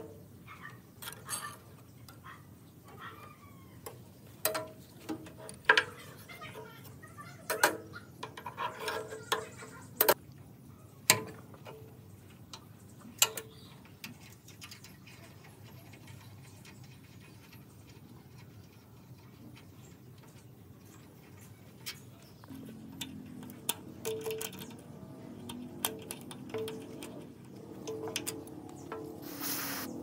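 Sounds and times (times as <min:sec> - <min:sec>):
clicks and taps on metal parts: 0:03.8 - 0:06.0, 0:11.1 - 0:15.0, 0:21.8 - 0:29.2
low steady hum: 0:20.9 - 0:30.0.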